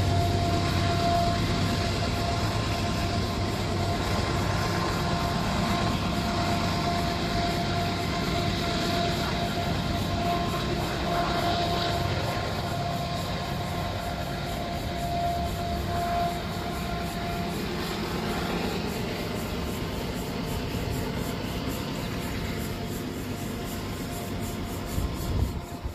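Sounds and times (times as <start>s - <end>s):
diesel locomotive rumble: 0.0s - 25.9s
thin steady whine: 0.0s - 25.9s.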